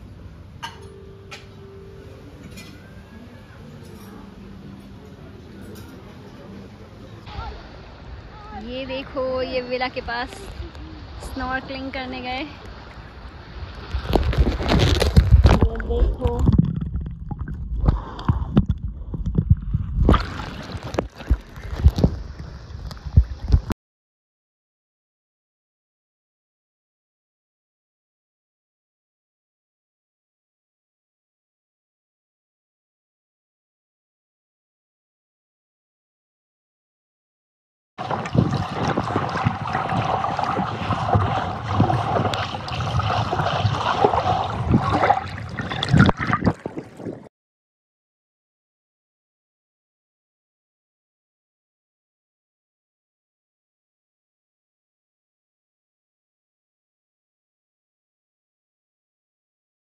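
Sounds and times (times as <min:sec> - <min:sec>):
water sloshing and gurgling: 0:09.4 - 0:23.8, 0:38.0 - 0:47.3.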